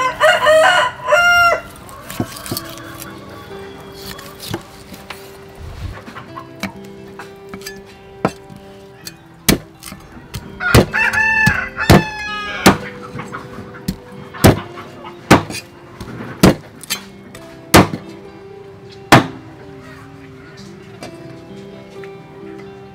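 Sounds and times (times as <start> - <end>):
rooster crowing: 0.0 - 4.5, 10.4 - 13.0
cleaver chopping ribs on block: 2.1 - 3.1, 7.5 - 12.9, 13.9 - 14.7, 15.3 - 17.0, 17.7 - 18.0, 19.1 - 19.4.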